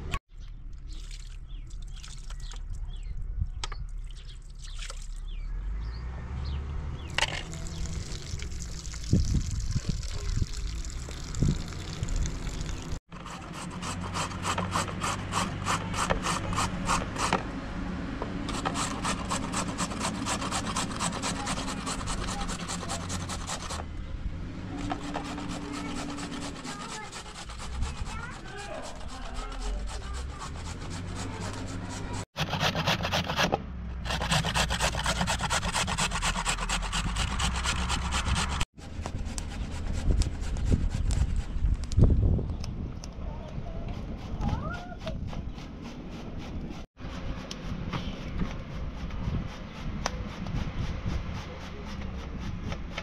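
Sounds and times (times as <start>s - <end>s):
carrots rasping on grater: 13.2s - 17.4s, 18.5s - 23.9s, 24.8s - 41.5s, 49.0s - 53.0s.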